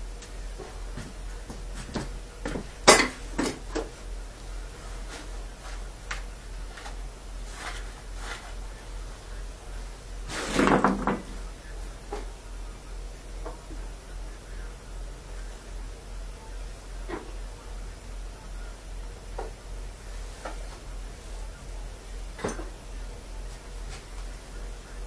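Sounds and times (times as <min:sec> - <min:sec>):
tools set down on workbench: 0:02.0 - 0:03.7, 0:10.3 - 0:11.3.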